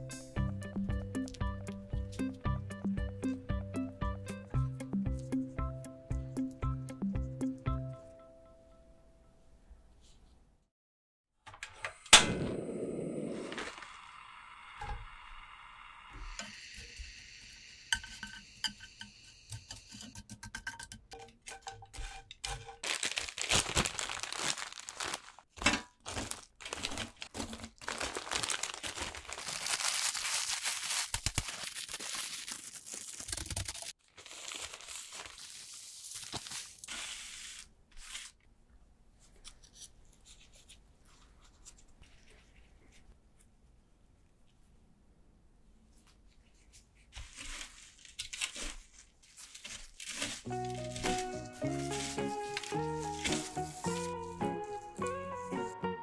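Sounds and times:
dry bread crusts crunching: 0:22.8 - 0:35.2, 0:47.1 - 0:55.1
plastic bag crinkling: 0:22.8 - 0:37.6, 0:47.2 - 0:55.8.

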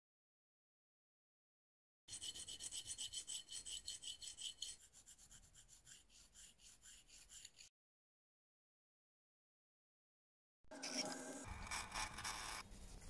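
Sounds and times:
metal scraping on file: 0:02.1 - 0:07.7, 0:10.7 - 0:13.0.

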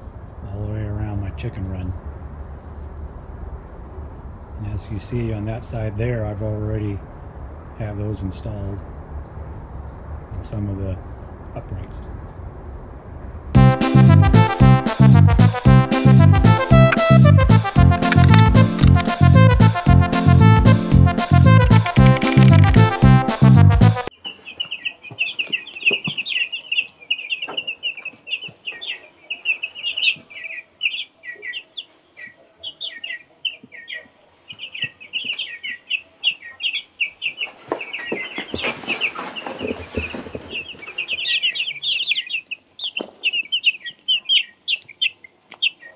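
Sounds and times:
birds chirping: 0:13.6 - 0:45.9.

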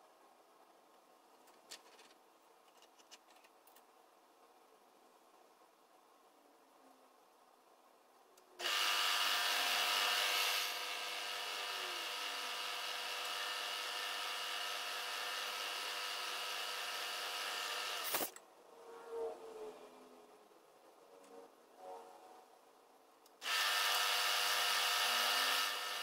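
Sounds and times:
drill spindle whining: 0:08.6 - 0:18.2, 0:23.4 - 0:26.0
drill bit drilling brass: 0:08.6 - 0:18.3, 0:23.4 - 0:26.0.

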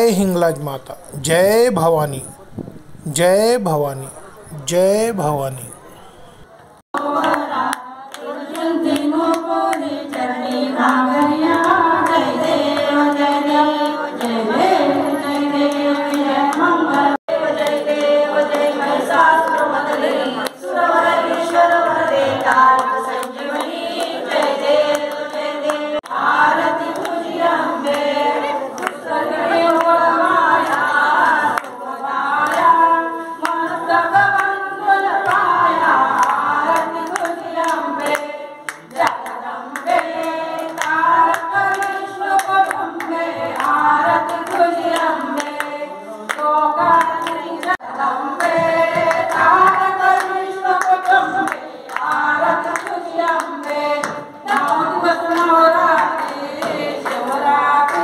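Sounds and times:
hand claps: 0:07.0 - 0:14.4, 0:28.7 - 0:29.0, 0:30.6 - 0:31.8, 0:33.4 - 0:34.6, 0:35.2 - 0:58.0
women singing together: 0:07.0 - 0:58.0.

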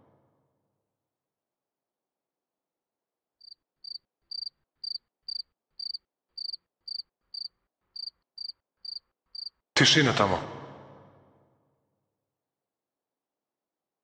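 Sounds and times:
cricket chirping: 0:03.4 - 0:09.6.

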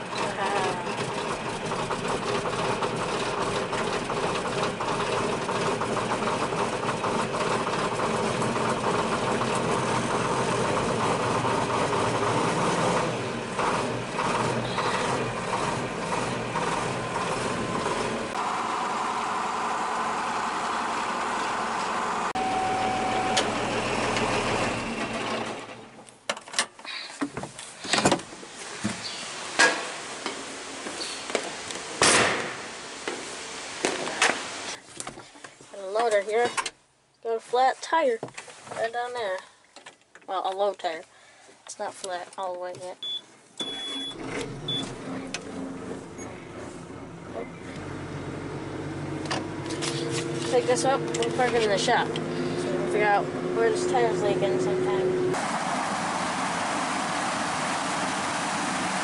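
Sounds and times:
tractor diesel engine running: 0:00.0 - 0:26.2, 0:42.0 - 0:59.0
short tone: 0:22.4 - 0:23.7, 0:43.0 - 0:44.9.

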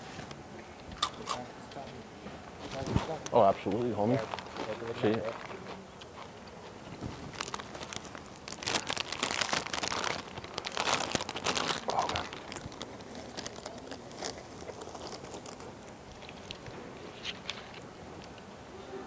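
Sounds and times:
chip bag crinkling: 0:02.7 - 0:05.7, 0:07.0 - 0:18.3.

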